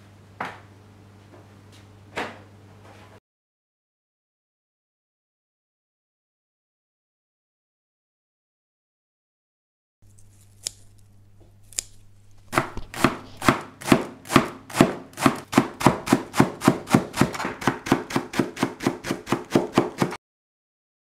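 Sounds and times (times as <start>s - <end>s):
cleaver chopping on cutting board: 11.7s - 20.2s.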